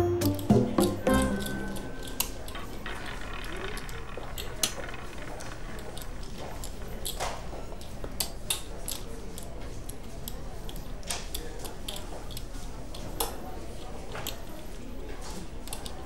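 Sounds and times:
background murmur: 0.0s - 16.0s
gaming chips clattering: 1.1s - 7.2s.

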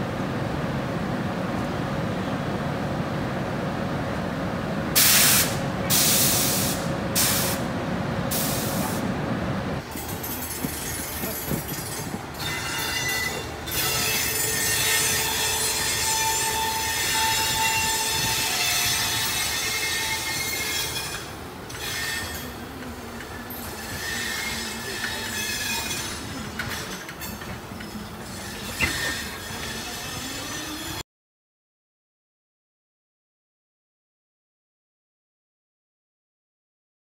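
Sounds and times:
electric locomotive humming: 0.0s - 31.0s
air hiss bursts: 5.0s - 7.6s, 8.3s - 9.0s
train wheels squealing on rails: 9.8s - 31.0s.

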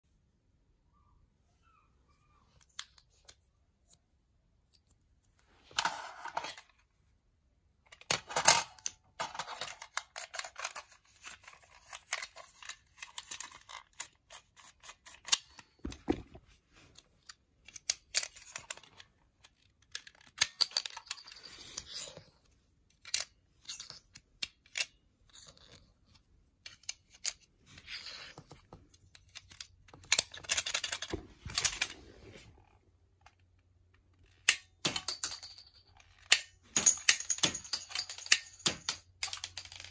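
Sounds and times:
plastic toy clicks and rattles: 8.0s - 15.8s, 29.2s - 31.8s.

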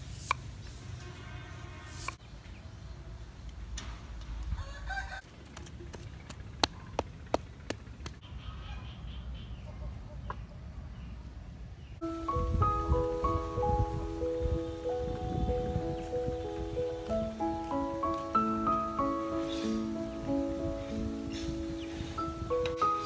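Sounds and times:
rooster crowing: 4.5s - 5.3s
chickens clucking: 6.6s - 10.7s, 16.0s - 23.0s.

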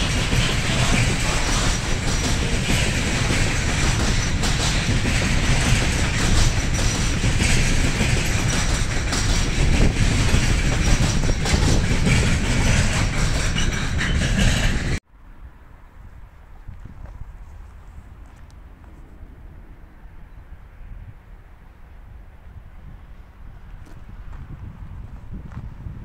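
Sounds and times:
train wheels clattering over rails: 0.0s - 15.0s.

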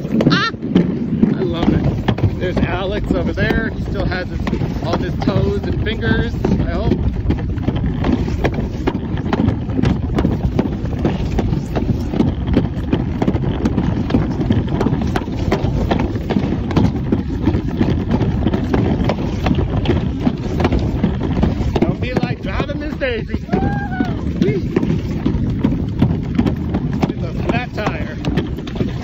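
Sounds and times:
clatter of clicks and knocks: 0.0s - 29.0s
sled rumbling down chute: 0.0s - 29.0s.

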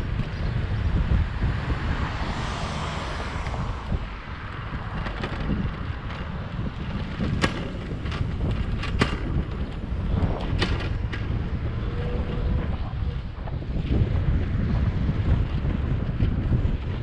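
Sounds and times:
tyres rumbling on asphalt: 0.0s - 17.0s
wind buffeting microphone: 0.0s - 17.0s
bicycle clicks and rattles: 3.4s - 17.0s.

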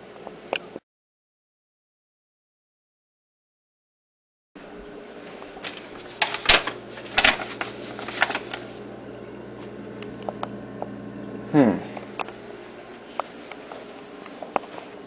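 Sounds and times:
steady low hum: 4.6s - 15.0s.

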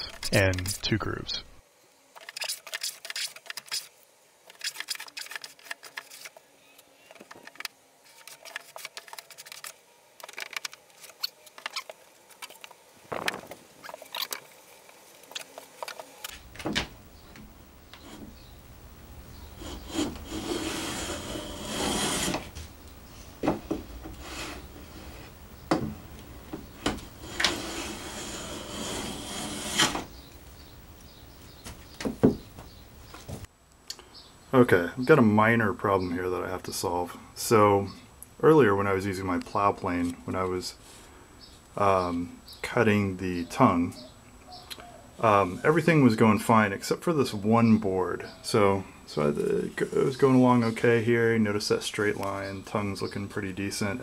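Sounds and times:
hand plane rasping through wood: 19.6s - 22.5s, 27.2s - 30.1s
plane knocks: 31.6s - 33.4s.

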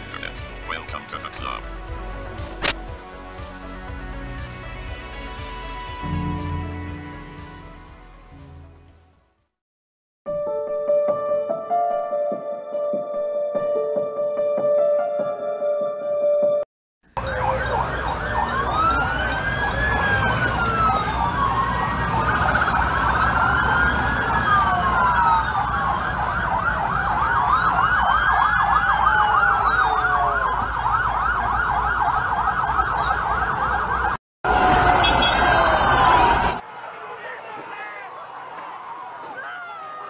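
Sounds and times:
siren yelping: 17.2s - 34.2s
siren wailing: 17.2s - 36.6s.

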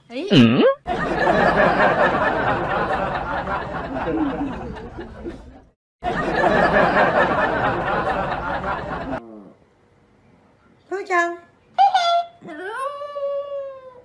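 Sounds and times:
laugh track: 0.4s - 9.2s.

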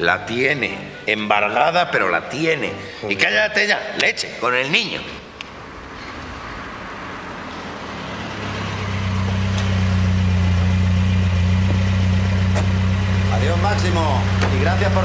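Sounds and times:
car engine idling: 5.4s - 15.0s.

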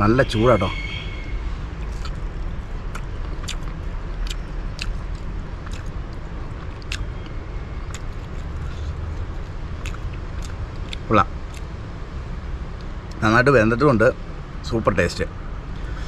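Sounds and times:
steady low rumble: 1.0s - 16.0s
man chewing with mouth clicks: 1.8s - 11.7s.

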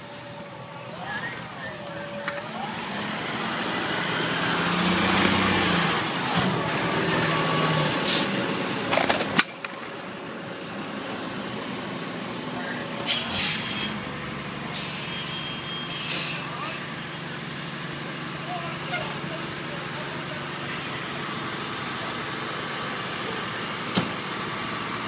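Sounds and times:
fire engine diesel engine: 0.0s - 25.0s
street noise: 0.0s - 25.0s.

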